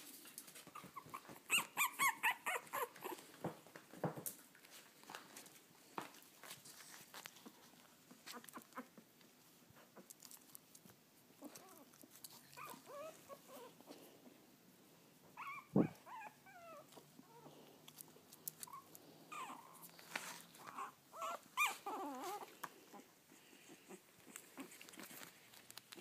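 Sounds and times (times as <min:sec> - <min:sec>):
puppies whimpering: 0:00.6 - 0:03.3, 0:12.4 - 0:14.0, 0:15.4 - 0:17.6, 0:18.6 - 0:24.9.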